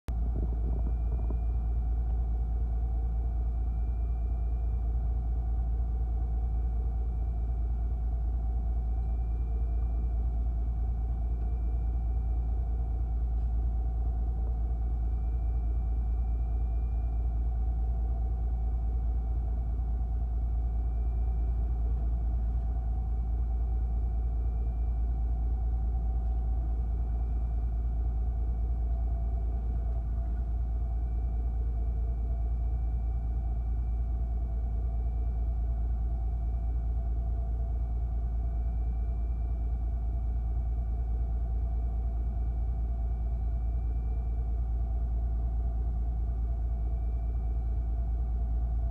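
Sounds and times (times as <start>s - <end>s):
boat engine rumbling: 0.1s - 3.2s
faint high whine: 0.1s - 48.9s.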